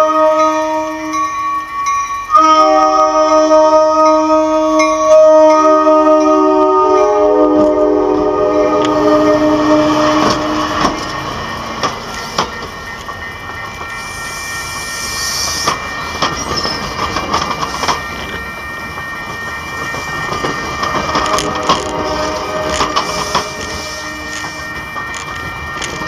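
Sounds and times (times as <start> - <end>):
locomotive horn chord: 0.0 - 1.3, 2.3 - 11.4, 21.1 - 24.9
passenger train rolling past: 0.0 - 26.0
wheels clicking over rail joints: 8.6 - 14.0, 15.5 - 26.0
hiss of air: 14.0 - 15.7.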